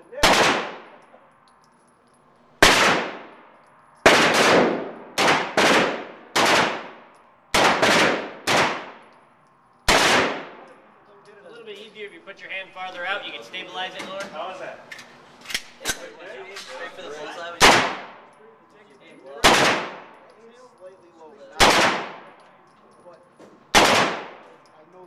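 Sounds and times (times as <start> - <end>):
rifle shots echoing indoors: 0.2 - 10.8, 17.6 - 18.4, 19.4 - 20.3, 21.6 - 22.4, 23.7 - 24.7.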